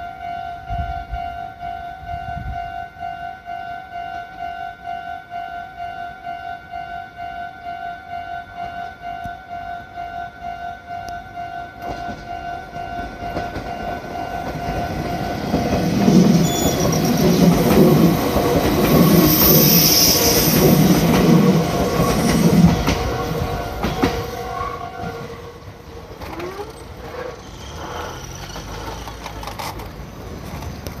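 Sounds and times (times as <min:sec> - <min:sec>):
crossing warning bell ringing: 0:00.0 - 0:29.2
train wheels clattering: 0:11.8 - 0:25.4.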